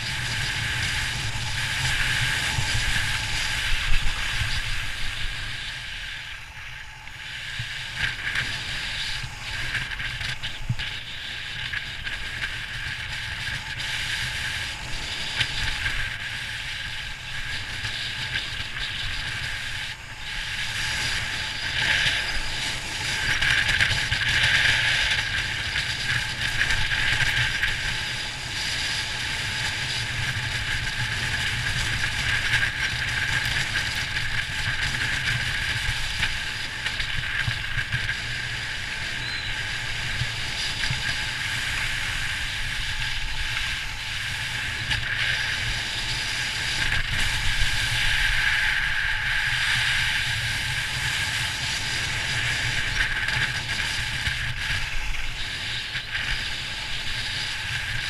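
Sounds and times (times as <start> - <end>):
snowboard scraping over snow: 0.0 - 58.0
wind rumbling on microphone: 0.0 - 58.0.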